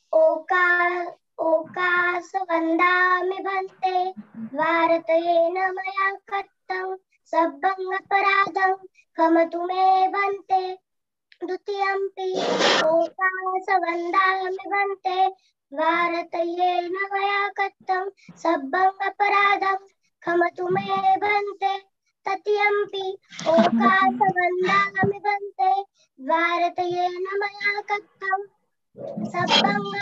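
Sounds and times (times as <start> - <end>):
girl chanting: 0.0 - 10.8, 11.4 - 30.0
short rush of noise: 12.3 - 12.9.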